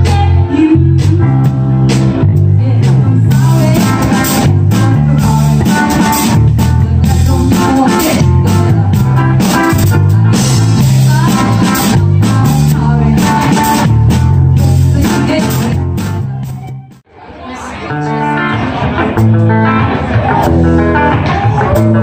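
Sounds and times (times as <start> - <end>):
drum kit steady beat: 0.0 - 17.0
electric guitar: 0.0 - 17.0, 17.9 - 22.0
bass: 0.0 - 22.0.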